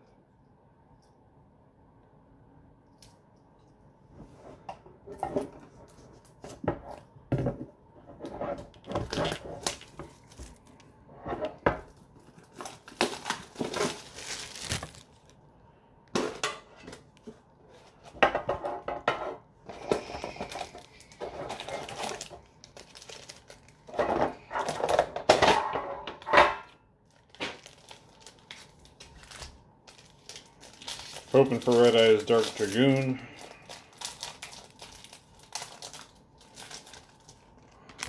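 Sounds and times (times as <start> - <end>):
plastic wrap crinkling and tearing: 8.6 - 10.9, 11.9 - 15.4, 19.7 - 25.5, 27.0 - 38.0.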